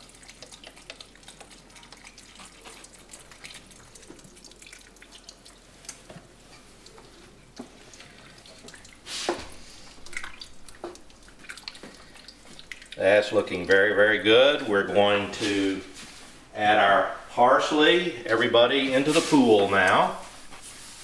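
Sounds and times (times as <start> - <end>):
liquid trickling and splashing: 0.0 - 16.3.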